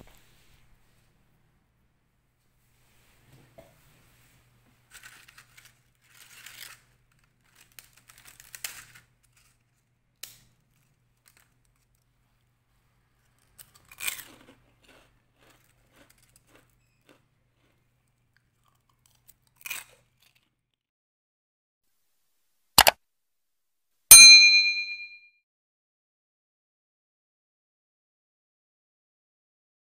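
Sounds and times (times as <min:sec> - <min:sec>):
cookies crunching: 0:04.9 - 0:20.6.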